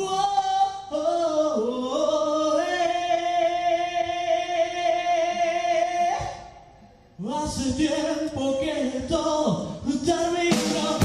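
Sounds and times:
men singing in harmony: 9.4s - 11.0s.

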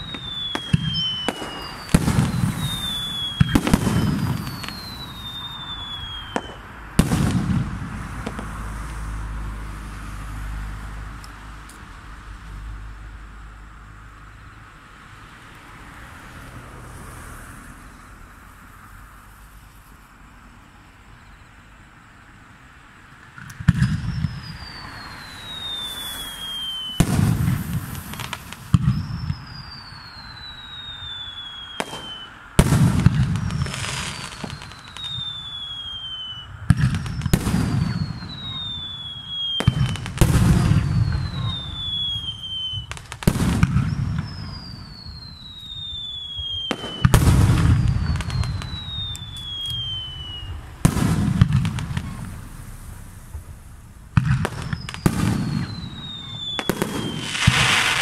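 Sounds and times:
firework whistle falling in pitch: 0.0s - 7.6s, 23.7s - 53.2s, 54.2s - 58.0s
firework bang with booming echo: 0.0s - 9.0s, 23.4s - 58.0s.

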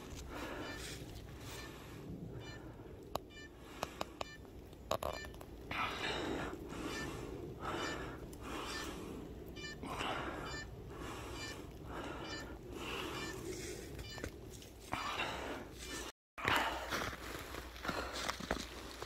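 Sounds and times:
short electronic beeps: 0.6s - 1.8s, 2.4s - 3.6s, 4.2s - 5.4s, 6.9s - 7.1s, 8.7s - 8.9s, 9.6s - 9.8s, 10.4s - 10.7s, 11.3s - 11.6s, 12.2s - 14.3s.

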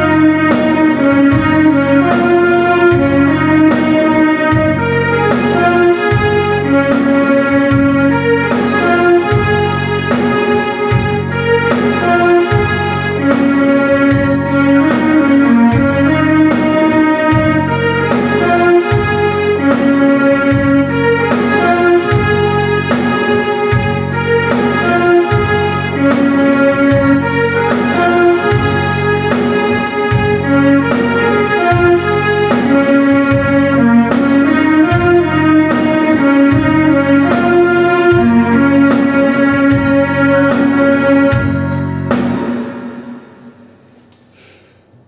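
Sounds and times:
electronic keyboard organ-like melody: 0.0s - 43.7s.

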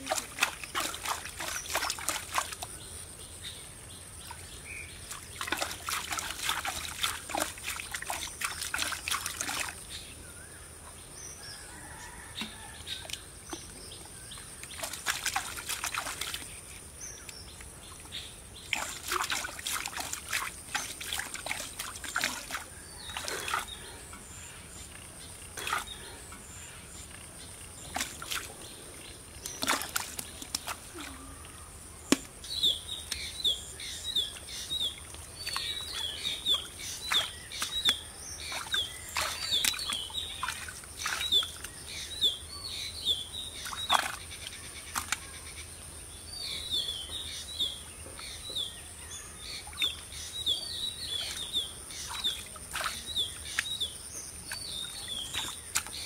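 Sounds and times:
hands digging wet mud: 0.0s - 2.6s, 5.1s - 9.8s, 18.7s - 24.0s, 29.4s - 31.1s, 35.4s - 41.8s.

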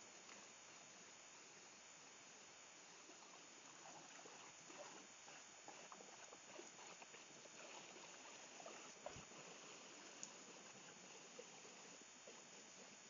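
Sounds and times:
stream running over rocks: 0.0s - 13.0s
small ticks: 0.1s - 0.5s, 3.0s - 13.0s.

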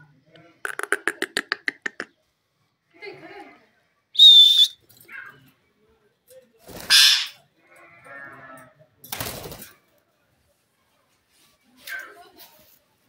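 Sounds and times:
parrots screeching: 6.8s - 7.4s.

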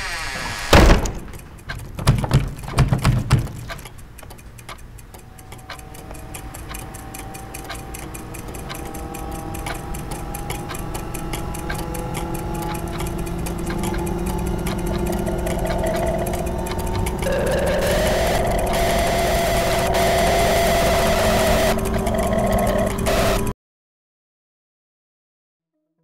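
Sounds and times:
clock ticking: 1.1s - 23.5s
sustained droning tones: 5.1s - 23.5s.

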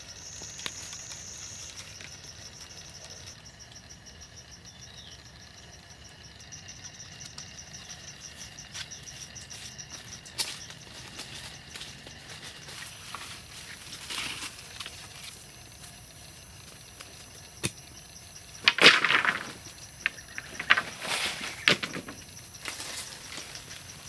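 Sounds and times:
branches rustling: 0.0s - 3.4s, 7.3s - 24.0s
forest insects droning: 0.0s - 24.0s
wood clattering: 18.6s - 22.3s.

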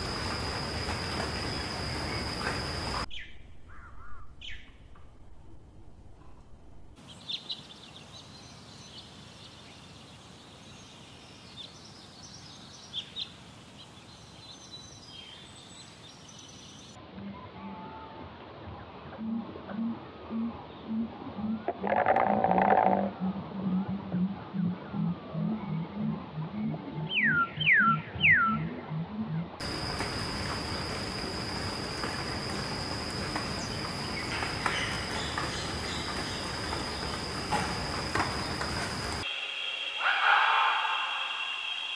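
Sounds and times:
high-pitched insect drone: 0.0s - 3.1s, 29.6s - 41.9s
steady low hiss: 0.0s - 17.2s, 29.6s - 40.0s
low pulsing animal call: 39.3s - 41.9s.

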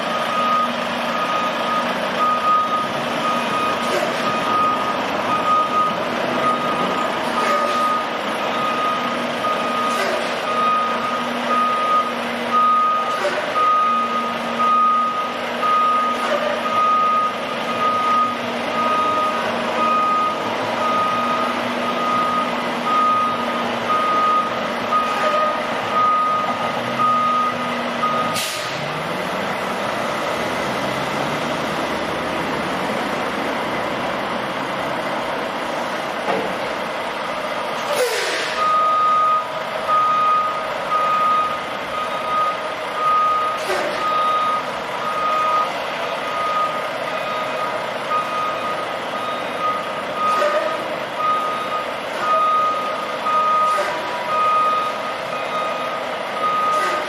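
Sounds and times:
diesel engine running: 0.0s - 57.0s
truck backup alarm beeping: 0.0s - 57.0s
short burst of air: 37.8s - 38.6s.

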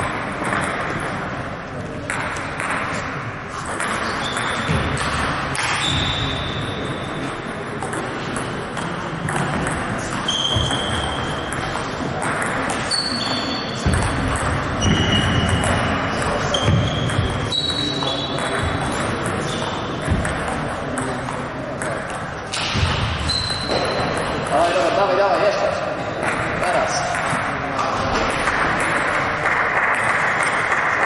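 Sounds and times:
shoes squeaking on floor: 4.0s - 5.0s, 5.6s - 7.2s, 10.0s - 11.6s, 12.8s - 18.5s, 23.2s - 24.3s.

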